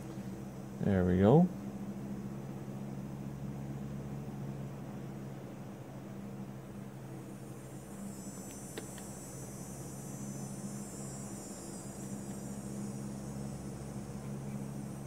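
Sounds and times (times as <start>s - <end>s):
low electrical hum: 0.0s - 15.0s
high hiss: 7.4s - 15.0s.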